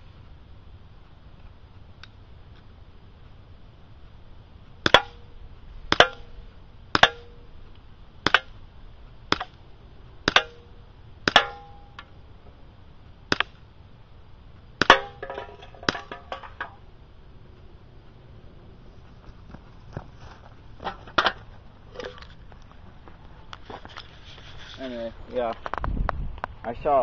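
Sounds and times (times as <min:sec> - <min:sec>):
airsoft pistol shots: 0:04.8 - 0:05.3, 0:05.9 - 0:07.4, 0:08.2 - 0:08.6, 0:09.3 - 0:09.6, 0:10.2 - 0:12.0, 0:13.3 - 0:13.6, 0:14.8 - 0:16.2
metallic ring of can: 0:10.3 - 0:12.2, 0:14.9 - 0:16.8.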